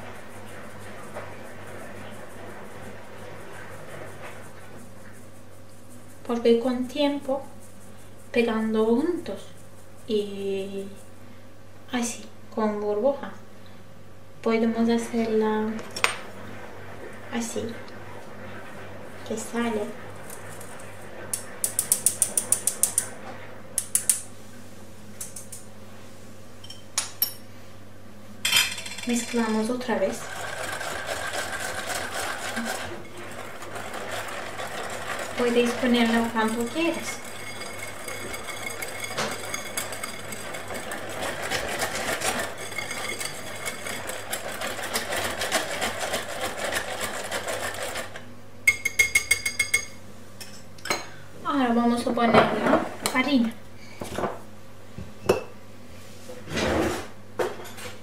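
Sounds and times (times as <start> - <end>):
metal sieve rattling: 28.5 - 48.2
whisk beating batter in glass bowl: 29.1 - 48.2.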